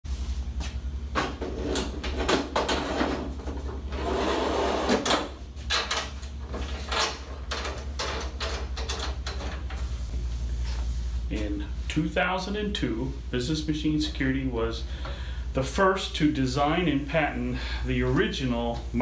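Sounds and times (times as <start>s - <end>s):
projector scraping slide: 3.9s - 5.1s
projector clicks and rattles: 5.0s - 9.9s.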